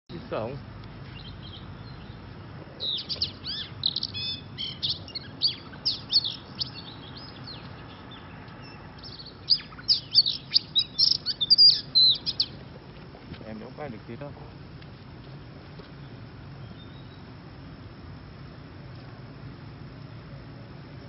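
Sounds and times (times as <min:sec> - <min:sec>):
bird singing whistles and chirps: 0:02.8 - 0:12.6, 0:16.0 - 0:17.3.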